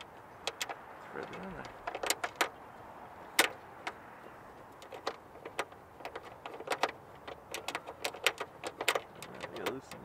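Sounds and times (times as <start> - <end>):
metal fastener clicking: 0.0 - 2.6, 4.7 - 10.0.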